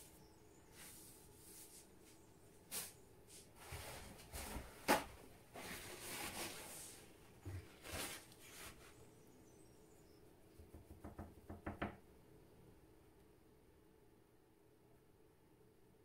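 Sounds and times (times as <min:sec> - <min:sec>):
soft rustling: 0:05.5 - 0:09.1.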